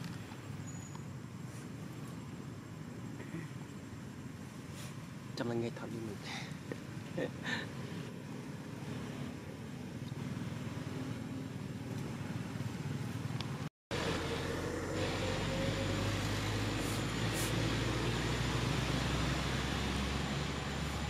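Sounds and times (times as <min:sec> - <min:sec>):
motor vehicle low rumble: 0:06.0 - 0:21.0
faint rising tone: 0:13.9 - 0:21.0.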